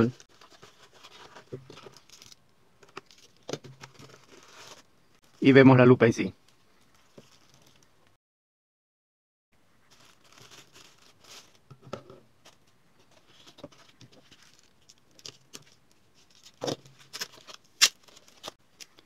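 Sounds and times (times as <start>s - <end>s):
plastic bag rustling: 9.9s - 11.6s.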